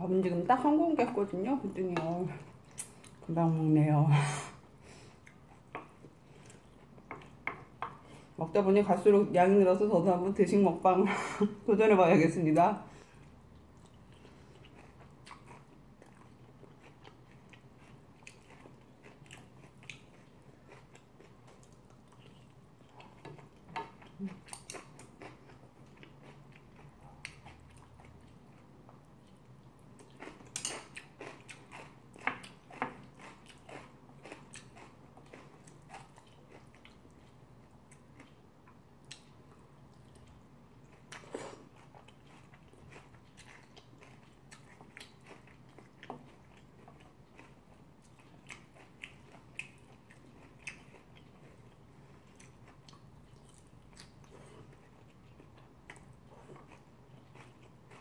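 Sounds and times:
chewing and mouth sounds: 13.2s - 58.0s.

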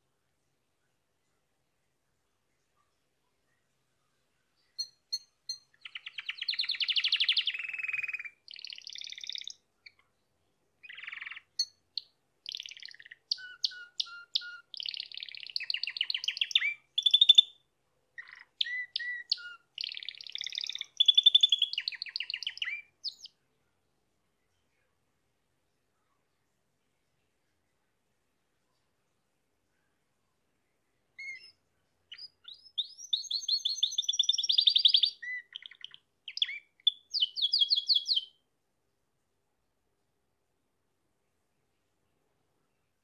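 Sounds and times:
canary singing trilled phrases: 4.7s - 10.1s, 10.8s - 17.6s, 18.2s - 23.4s, 31.2s - 38.4s.

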